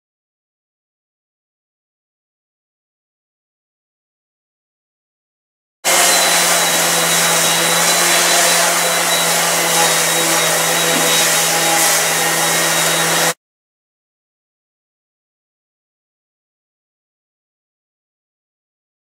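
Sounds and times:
orbital sander sanding metal: 0:05.9 - 0:13.4.

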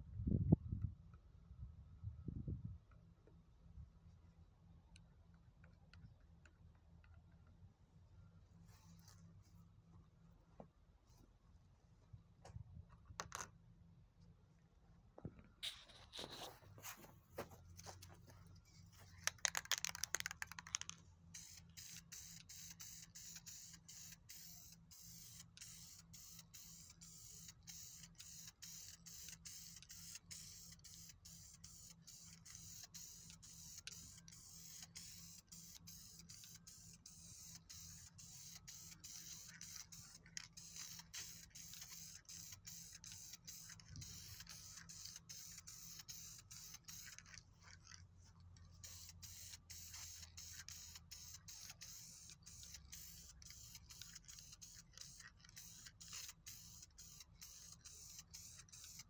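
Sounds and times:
spray paint can hissing: 0:15.6 - 0:17.0, 0:18.9 - 0:47.4, 0:48.7 - 0:59.0.

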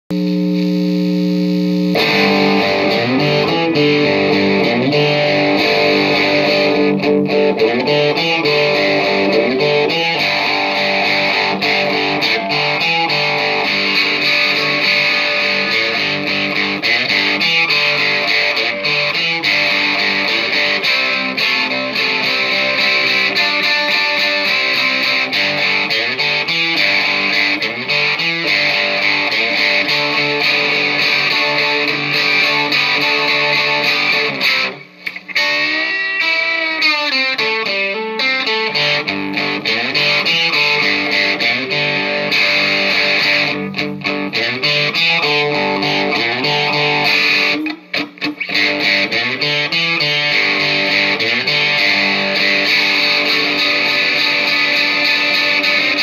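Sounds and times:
distorted electric guitar: 0:00.1 - 0:56.0.

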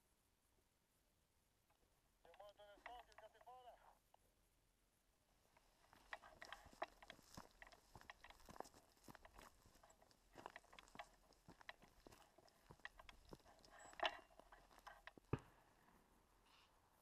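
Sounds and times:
light clicks and scrapes: 0:05.6 - 0:15.4
footsteps on stones and leaves: 0:05.9 - 0:15.3.

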